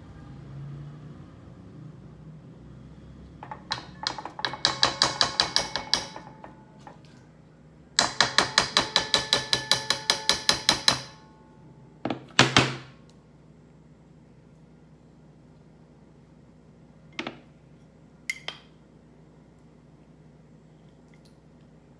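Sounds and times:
spoon tapping a pot: 3.4 - 7.0, 8.0 - 11.3.

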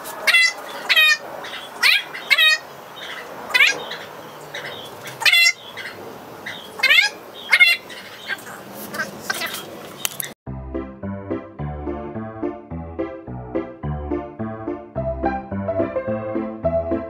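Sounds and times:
animal cries rising in pitch: 0.2 - 6.0, 6.8 - 9.6.

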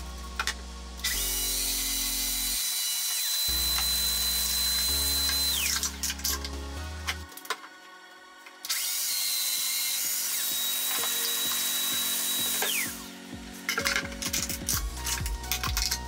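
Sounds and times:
power tool motor whining: 1.0 - 6.1, 8.6 - 13.2
background music with beat: 3.5 - 16.0.

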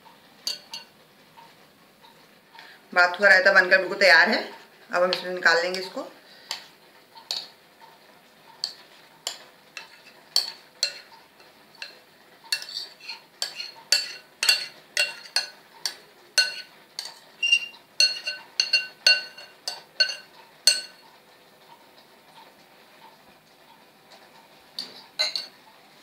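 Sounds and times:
metal spoon clinking on glass bowl: 0.5 - 0.9, 8.6 - 11.1, 11.8 - 21.0, 25.2 - 25.5.

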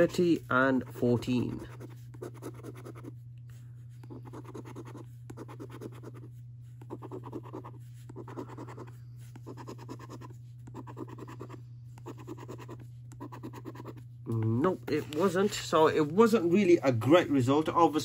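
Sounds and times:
steady low hum: 0.0 - 18.0
coin scratching scratchcard: 1.3 - 3.2, 4.0 - 14.0.

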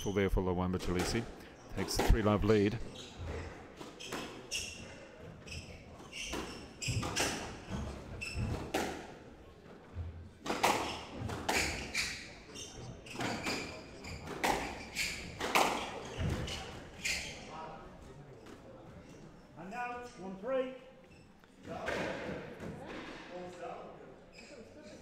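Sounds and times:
shoes squeaking on wooden floor: 1.8 - 8.9, 10.0 - 17.6.

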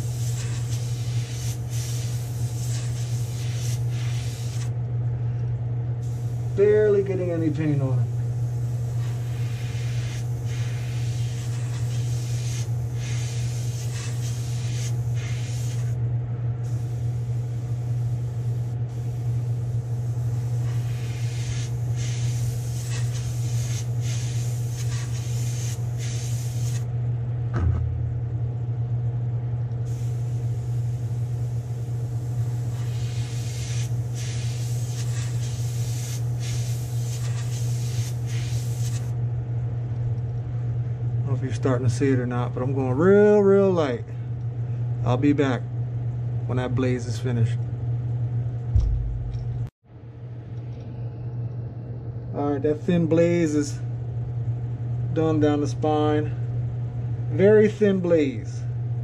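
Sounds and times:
airbrush spraying hiss: 0.0 - 4.7, 6.0 - 7.0, 7.6 - 16.0, 16.6 - 26.9, 29.9 - 39.2
soft knock: 27.5 - 28.1
low motor drone: 27.5 - 32.6, 48.7 - 49.7.

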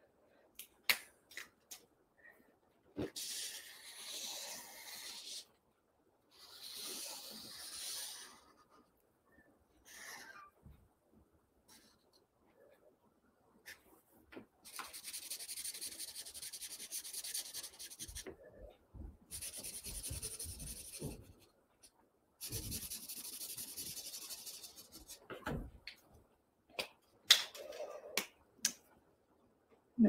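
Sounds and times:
marker scribbling on paper: 3.2 - 5.5, 6.3 - 8.8, 14.7 - 18.3, 19.3 - 21.5, 22.4 - 25.2.

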